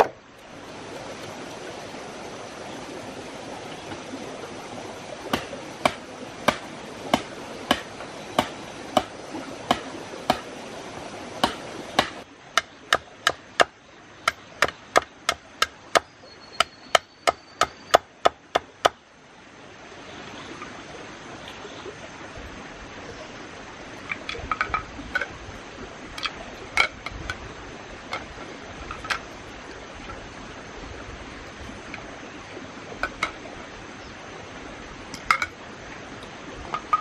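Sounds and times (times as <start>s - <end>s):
knife chopping bamboo on wood: 5.3s - 10.5s, 11.4s - 13.7s, 14.3s - 19.0s.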